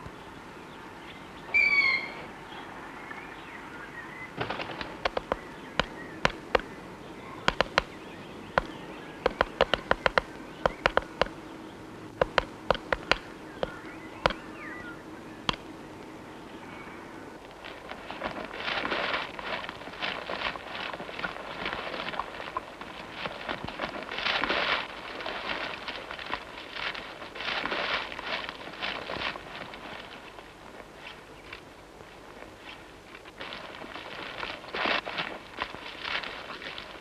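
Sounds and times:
chickadee call: 0:01.5 - 0:02.3
bird tapping and clicking: 0:04.5 - 0:06.7, 0:07.4 - 0:11.4, 0:12.2 - 0:14.4.

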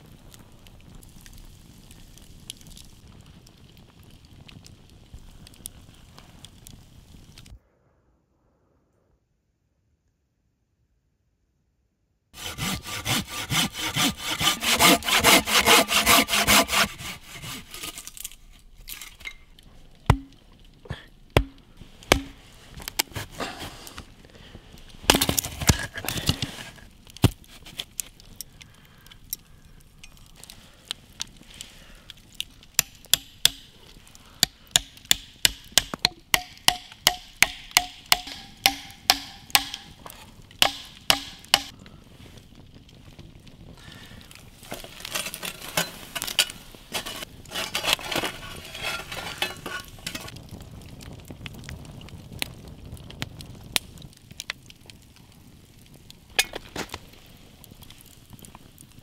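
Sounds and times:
sharp blows on wood: 0:12.4 - 0:18.1, 0:20.1 - 0:20.4, 0:21.4 - 0:23.6, 0:32.8 - 0:33.8, 0:34.4 - 0:41.7
hand saw cutting wood: 0:12.4 - 0:18.3, 0:22.1 - 0:23.8, 0:34.8 - 0:39.9, 0:40.6 - 0:41.7, 0:45.0 - 0:50.3
knocks on wood: 0:21.4 - 0:22.4.

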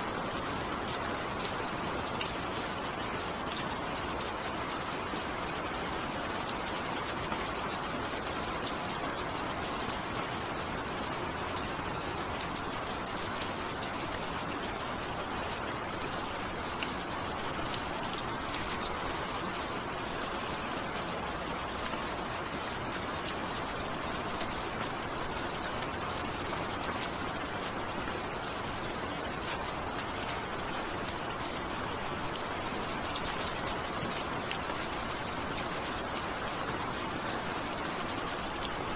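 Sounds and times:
raindrops ticking: 0:00.0 - 0:38.9
steady rain hiss: 0:00.0 - 0:38.9.

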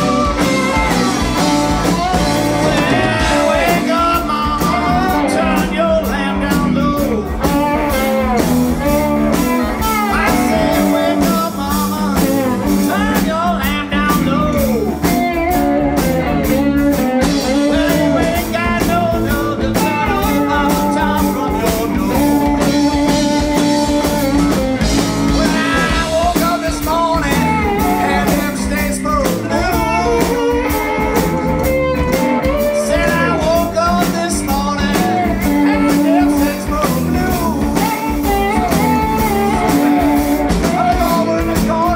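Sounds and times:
bass guitar: 0:00.0 - 0:41.9
drums: 0:00.0 - 0:41.9
electric guitars: 0:00.0 - 0:41.9
man singing lead vocal: 0:00.0 - 0:41.9.

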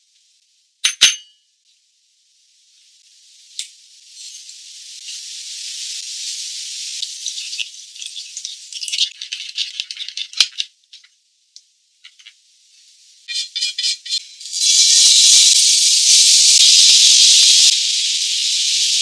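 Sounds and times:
metal spoon clinking in bowl: 0:00.8 - 0:01.3
liquid pouring: 0:07.1 - 0:10.4.

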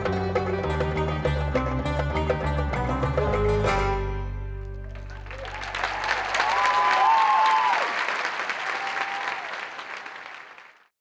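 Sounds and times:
audience applauding: 0:04.8 - 0:11.0
cheering voices: 0:04.9 - 0:10.8.

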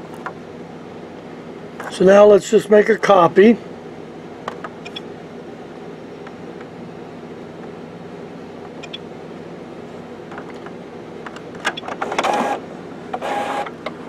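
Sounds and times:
steady low hum: 0:00.0 - 0:14.0
printer mechanical whirring: 0:10.3 - 0:14.0
printer clicking: 0:11.6 - 0:14.0.

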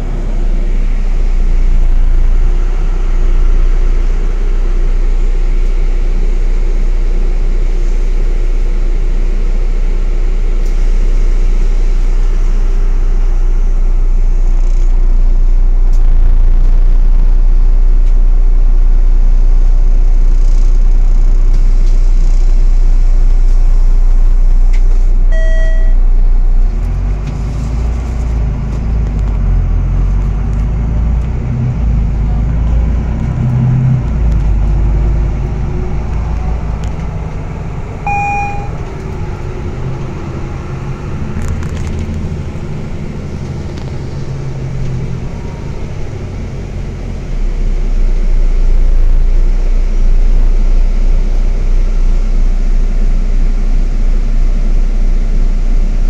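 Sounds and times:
bus engine and road noise: 0:00.0 - 0:56.0
brief beeps: 0:25.3 - 0:26.0, 0:38.1 - 0:38.8.

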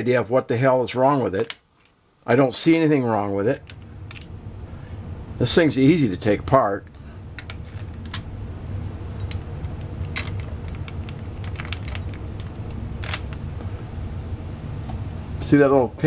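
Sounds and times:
steady low hum: 0:00.0 - 0:16.0
small metal and plastic parts clicking: 0:10.1 - 0:13.3.

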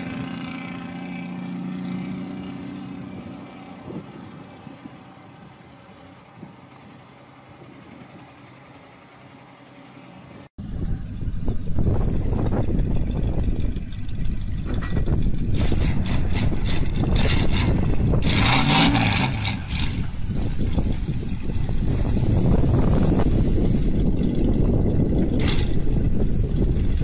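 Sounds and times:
truck engine running: 0:00.0 - 0:27.0
brush scraping against truck: 0:14.8 - 0:24.2.

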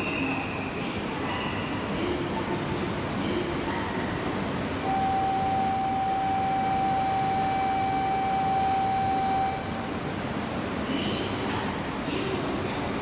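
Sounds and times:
station background noise: 0:00.0 - 0:13.0
steady electronic tone: 0:04.8 - 0:10.0.

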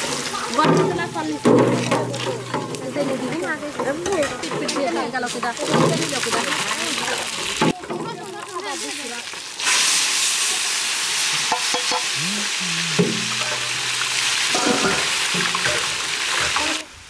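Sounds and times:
spices sizzling in hot oil: 0:00.0 - 0:16.9
metal spatula scraping pan: 0:12.9 - 0:16.8.

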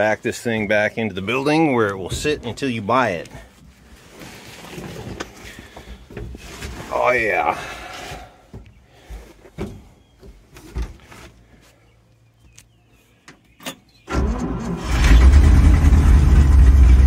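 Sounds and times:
truck engine starting and running: 0:13.6 - 0:17.0.

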